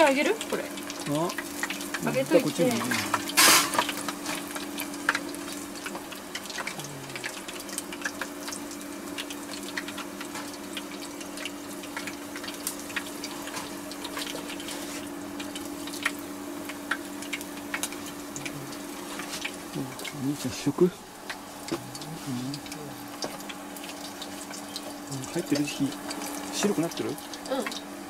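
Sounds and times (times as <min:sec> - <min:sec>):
deep-frying sizzle with pops: 0:00.0 - 0:28.0
steady low hum: 0:00.0 - 0:28.0.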